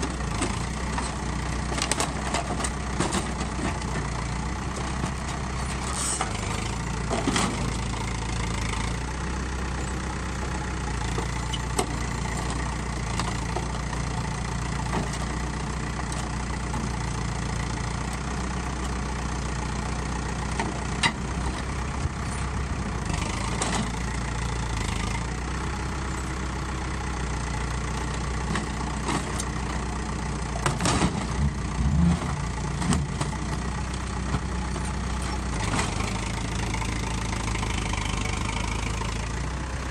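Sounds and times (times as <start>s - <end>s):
tractor engine running: 0.0s - 39.9s
metal knocking and crunching: 30.6s - 36.1s.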